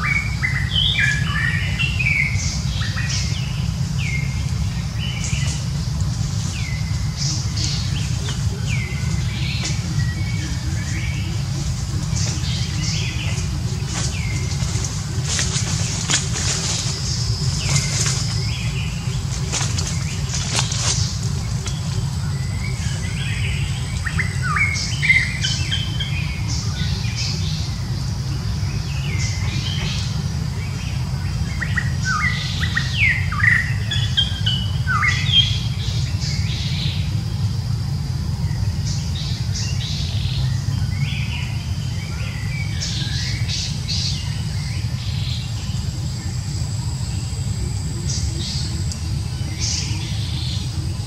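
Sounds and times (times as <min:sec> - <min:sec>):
birds chirping: 0:00.0 - 0:51.0
faint high whine: 0:00.0 - 0:51.0
steady low rumble: 0:00.0 - 0:51.0.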